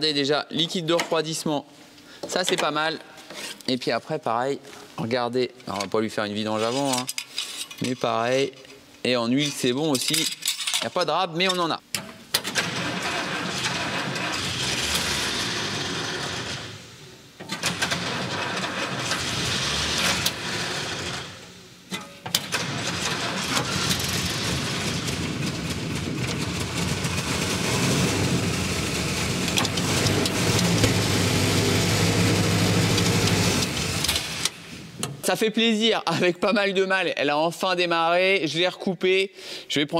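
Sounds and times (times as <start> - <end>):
petrol engine starting and running: 12.4 - 16.9, 17.5 - 21.5, 22.3 - 34.6.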